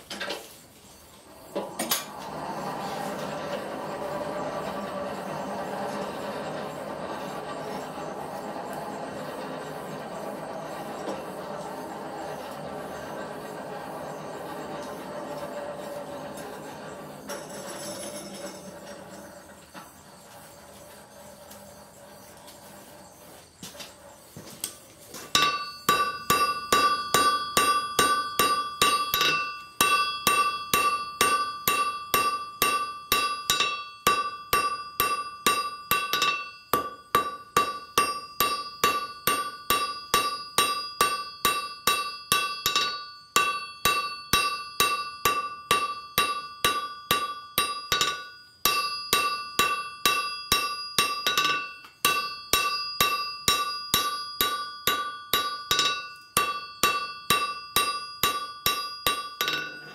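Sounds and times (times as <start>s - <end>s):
hammer striking steel on anvil: 25.3s - 59.9s
anvil ringing: 25.4s - 59.9s.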